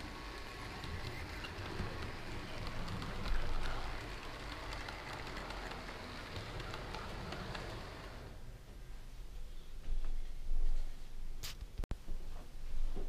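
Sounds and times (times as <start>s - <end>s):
model train wheels and motor rattling: 0.0s - 8.4s
small track clicks: 0.0s - 8.4s.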